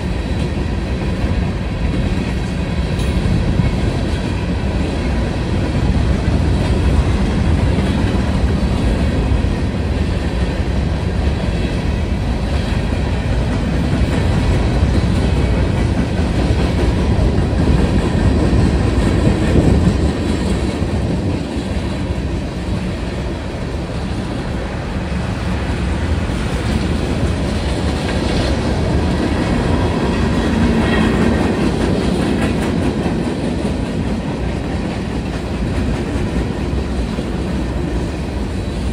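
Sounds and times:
freight train rumbling past: 0.0 - 38.9
wheels clacking over rails: 25.3 - 38.9.

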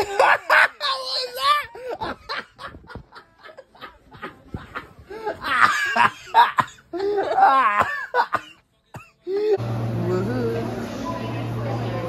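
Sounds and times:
person laughing: 0.0 - 8.5.

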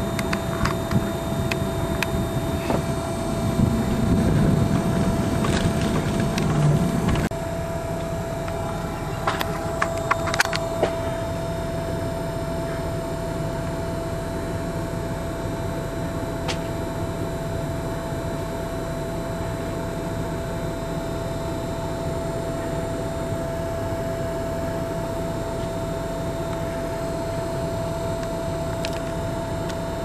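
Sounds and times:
vehicle engine idling: 0.0 - 30.0.

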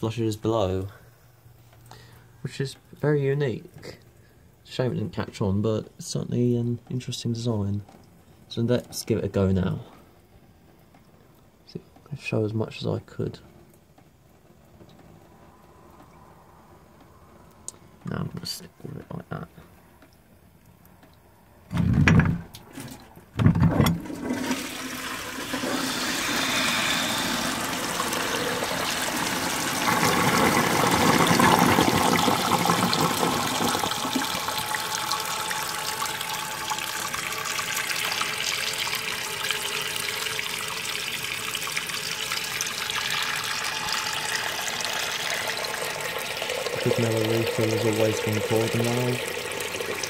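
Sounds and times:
water rushing in toilet cistern: 23.8 - 50.0.

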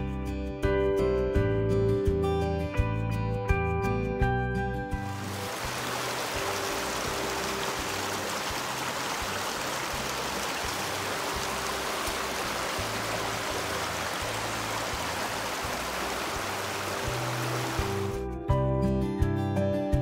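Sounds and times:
soft low music: 0.0 - 20.0
stream flowing: 5.0 - 18.2.

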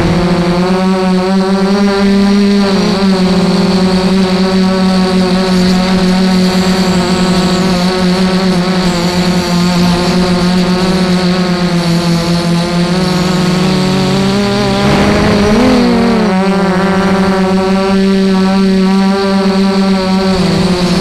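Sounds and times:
drone motors whining: 0.0 - 18.8.

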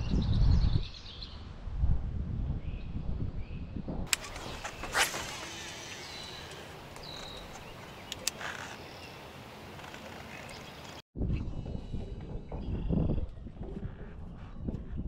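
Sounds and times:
outdoor background noise: 0.0 - 15.0
high bird chirp: 4.3 - 9.4.

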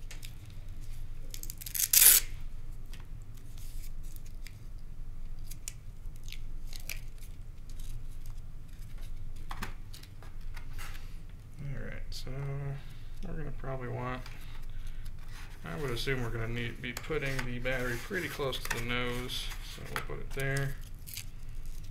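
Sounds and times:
plastic and paper rustling: 14.1 - 21.9.

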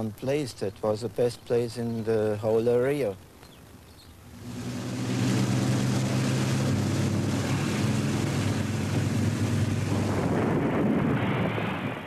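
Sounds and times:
aircraft engines droning: 4.2 - 12.0
rushing air noise: 4.3 - 12.0.

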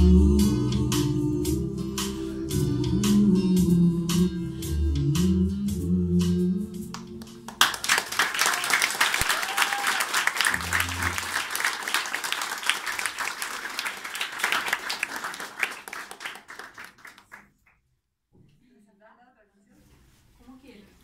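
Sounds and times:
audience applauding: 7.5 - 17.5
brief low hum: 10.5 - 11.4.

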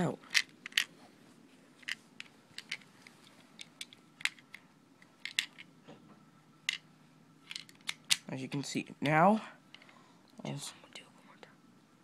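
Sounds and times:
plastic bricks clicking: 0.3 - 0.9, 2.6 - 2.8, 3.6 - 4.5, 5.2 - 5.7, 7.5 - 8.3.

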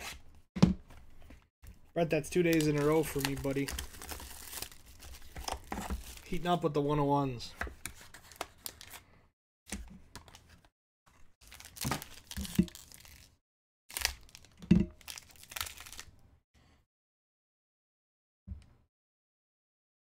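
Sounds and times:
foil wrapper tearing and crinkling: 2.4 - 6.3, 11.4 - 16.1.

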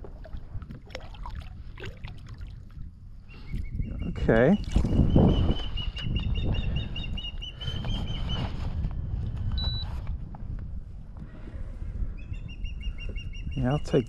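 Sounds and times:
wind buffeting microphone: 0.0 - 14.0.

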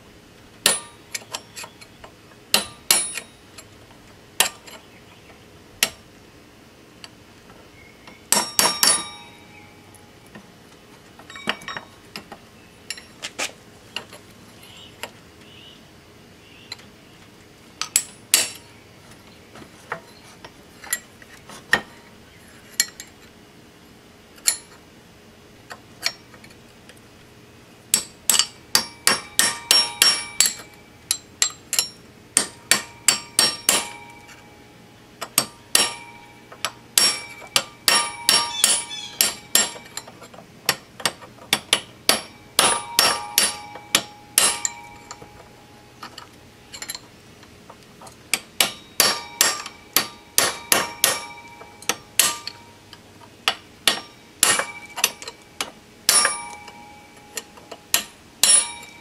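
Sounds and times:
hammer striking metal: 0.6 - 1.4, 2.5 - 3.4, 8.3 - 9.5, 17.8 - 18.7, 27.9 - 34.6, 35.2 - 47.0, 48.3 - 59.0.

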